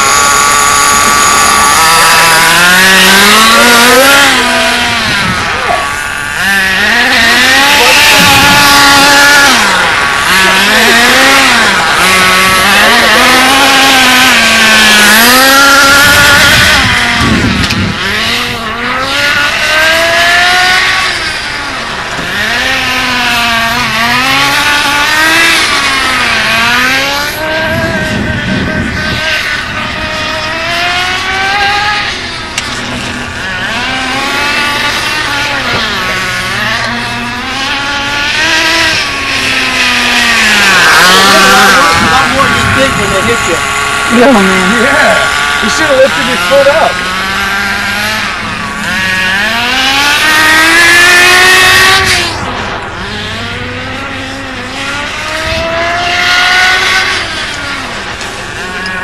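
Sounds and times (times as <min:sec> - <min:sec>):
small glow engine revving: 0:00.0 - 0:59.0.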